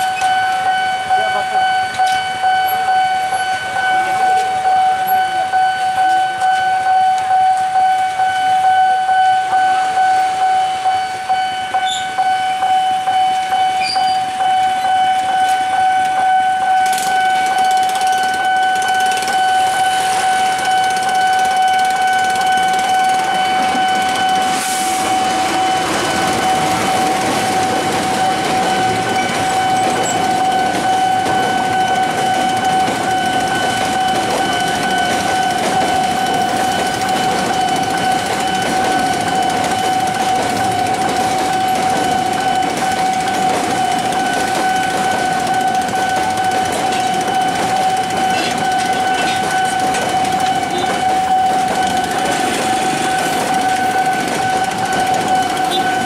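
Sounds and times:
level-crossing warning signal: 0.0s - 56.0s
freight train rumbling past: 16.2s - 56.0s.

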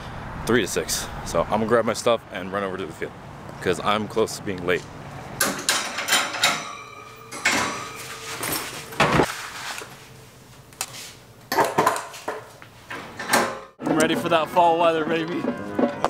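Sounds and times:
metal clattering and clanking: 5.4s - 9.3s, 12.9s - 16.0s.

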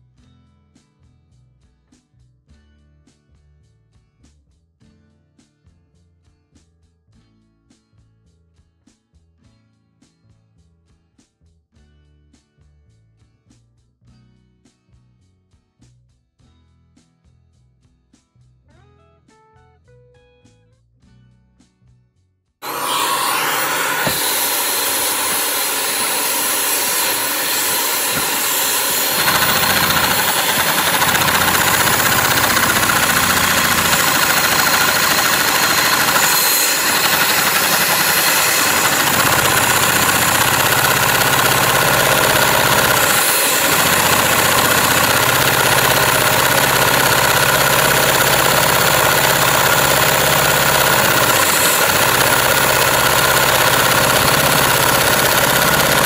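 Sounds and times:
air rushing from hose nozzle: 22.6s - 56.0s
engine rumbling hum: 22.6s - 56.0s.

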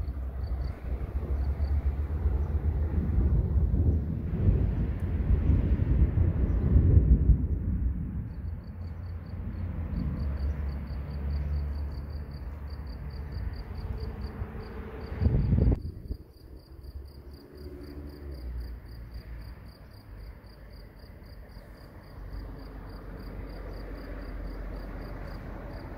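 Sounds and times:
cricket chirping: 0.0s - 2.7s, 8.2s - 25.9s
low rumble: 0.0s - 18.6s.

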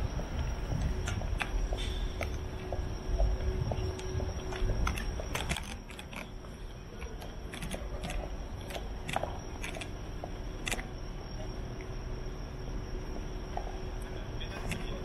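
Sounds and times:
faint high hum: 0.0s - 15.0s
low steady rumble: 0.0s - 15.0s
sharp clicks and ticks: 0.4s - 11.9s.

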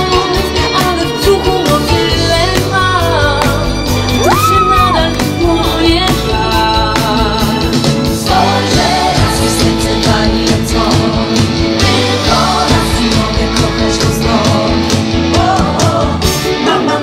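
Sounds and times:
person singing: 0.0s - 17.0s
upbeat pop-rock music: 0.0s - 17.0s.

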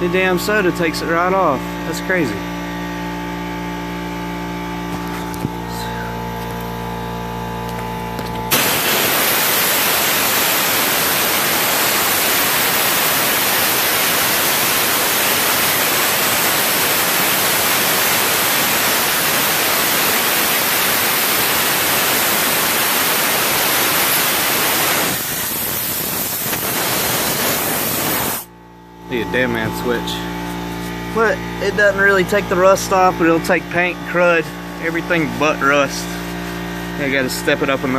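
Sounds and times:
machine hum: 0.0s - 37.9s
abrasive blaster hissing: 8.5s - 28.5s.

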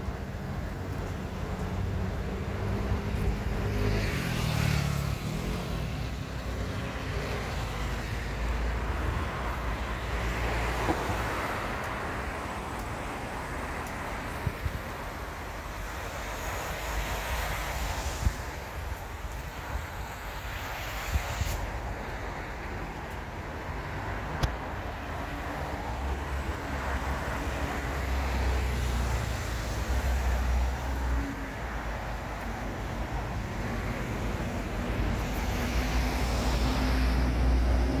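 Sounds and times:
cars passing: 0.0s - 38.0s.

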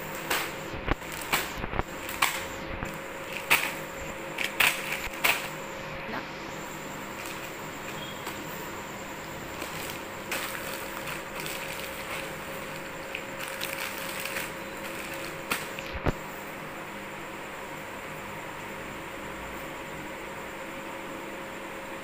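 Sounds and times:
cellophane wrapping crinkling: 0.1s - 5.6s, 7.2s - 8.5s, 9.5s - 16.1s.

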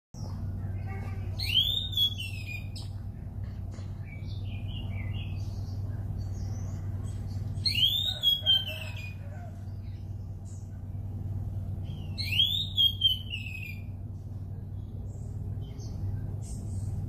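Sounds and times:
steady low hum: 0.2s - 17.0s
songbird whistling: 1.4s - 3.0s, 7.6s - 9.5s, 11.8s - 14.0s.

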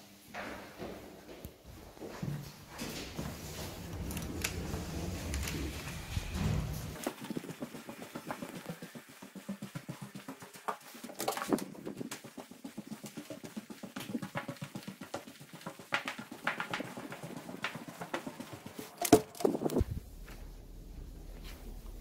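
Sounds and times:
footsteps on hallway floor: 0.3s - 22.0s
low steady hum: 19.8s - 22.0s.

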